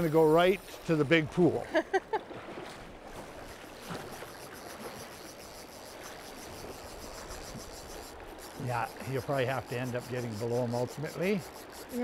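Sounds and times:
water splashing around legs: 0:00.0 - 0:11.2.

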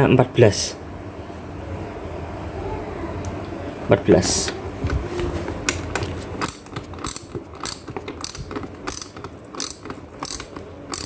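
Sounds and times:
socket ratchet clicking: 0:06.4 - 0:11.0.

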